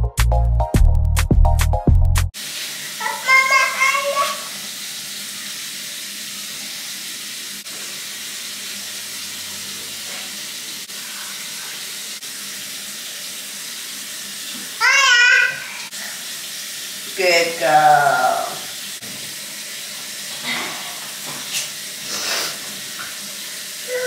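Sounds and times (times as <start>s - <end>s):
child's high-pitched voice: 3.0s - 4.5s, 14.8s - 15.9s.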